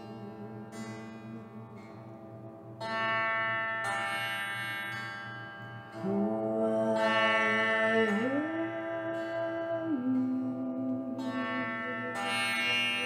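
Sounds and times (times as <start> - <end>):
woman singing long notes: 0.0 - 2.3, 6.0 - 13.0
tamboura drone: 0.0 - 13.0.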